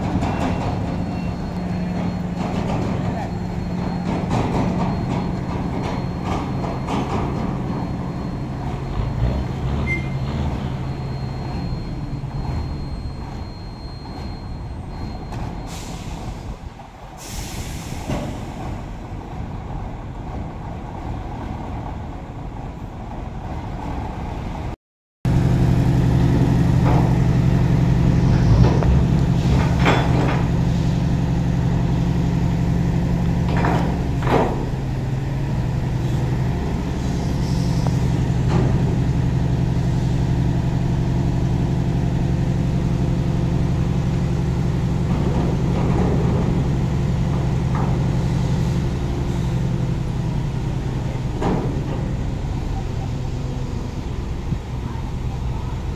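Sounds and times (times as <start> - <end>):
diesel truck engines idling: 0.0 - 55.9
air brake hiss: 15.7 - 16.6, 17.2 - 18.7, 36.9 - 38.1.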